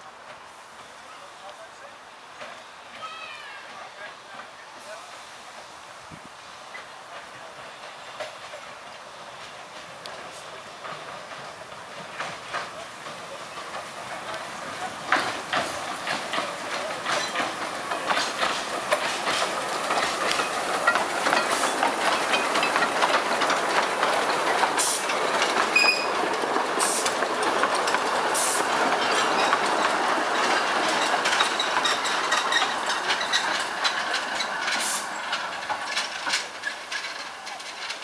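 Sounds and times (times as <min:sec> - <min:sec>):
train wheels clicking on rail joints: 0:00.1 - 0:38.0
steam hissing: 0:03.8 - 0:38.0
train wheel squeal: 0:16.3 - 0:23.0, 0:25.6 - 0:26.3, 0:28.5 - 0:38.0.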